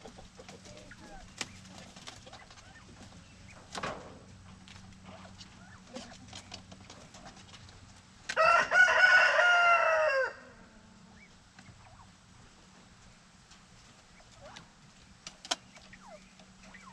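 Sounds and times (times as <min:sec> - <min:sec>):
faint ticks and scratches: 0:00.0 - 0:08.4
rooster crowing: 0:08.3 - 0:11.0.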